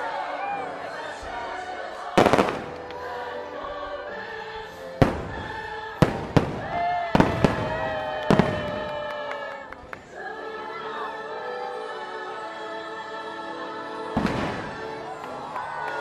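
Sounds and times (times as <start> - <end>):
music with singing voices: 0.0 - 16.0
fireworks bangs: 5.0 - 8.9, 14.2 - 14.9.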